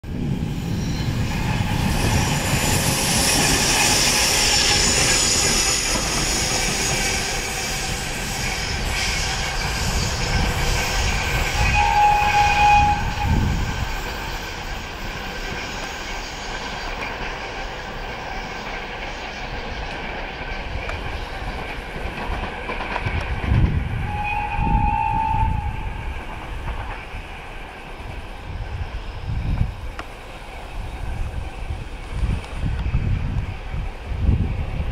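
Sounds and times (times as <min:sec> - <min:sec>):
diesel locomotive engine: 0:00.0 - 0:34.9
train horn blasts: 0:11.6 - 0:13.6, 0:24.0 - 0:26.0.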